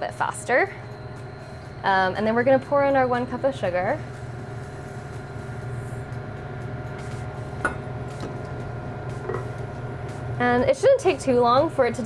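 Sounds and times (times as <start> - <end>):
induction cooktop electric hum: 0.0 - 12.0.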